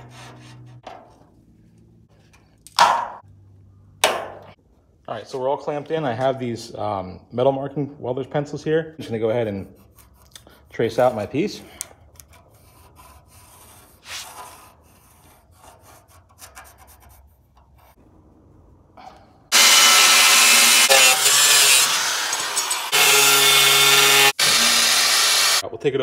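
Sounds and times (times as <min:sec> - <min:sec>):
angle grinder cutting steel: 0:19.5 - 0:25.6.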